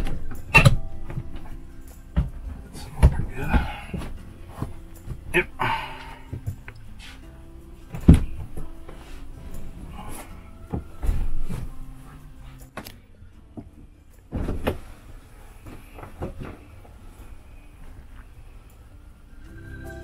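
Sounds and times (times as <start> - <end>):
thumps from recliner loveseat: 0.0 - 5.4, 14.3 - 16.8.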